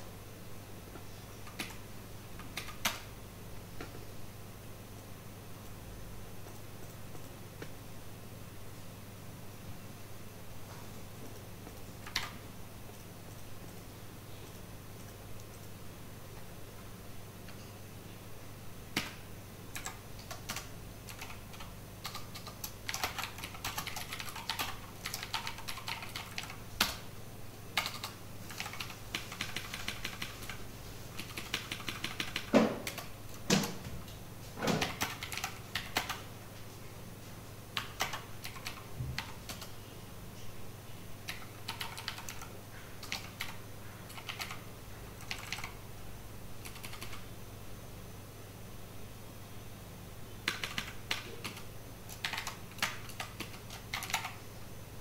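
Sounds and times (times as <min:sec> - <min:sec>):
typing on computer keyboard: 0:01.4 - 0:01.8, 0:02.4 - 0:03.1, 0:11.3 - 0:13.8, 0:18.9 - 0:27.0, 0:27.8 - 0:30.6, 0:31.2 - 0:33.8, 0:34.7 - 0:36.3, 0:37.8 - 0:39.8, 0:41.3 - 0:45.8, 0:46.6 - 0:47.2, 0:50.4 - 0:54.4.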